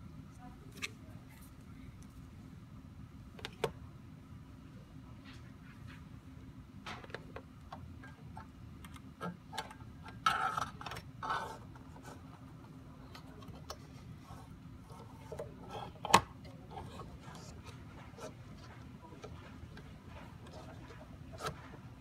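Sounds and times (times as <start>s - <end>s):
cable rubbing and rustling: 9.5s - 22.0s.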